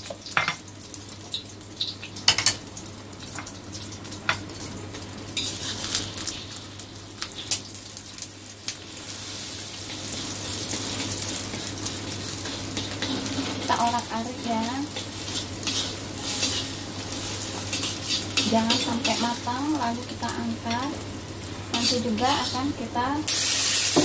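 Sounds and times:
eggs sizzling in hot oil: 0.0 - 24.0.

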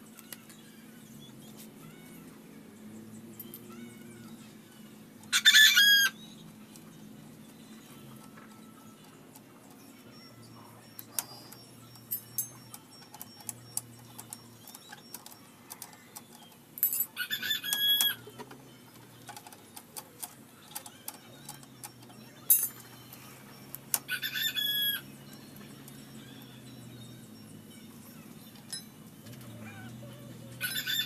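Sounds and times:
wrenches clicking and clinking: 11.0 - 24.2, 25.2 - 29.6.

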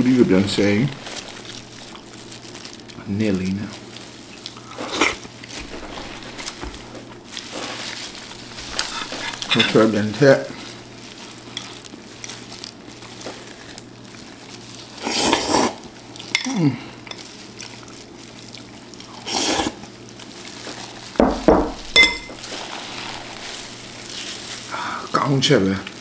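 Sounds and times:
spoon clinking against container: 21.9 - 22.4.

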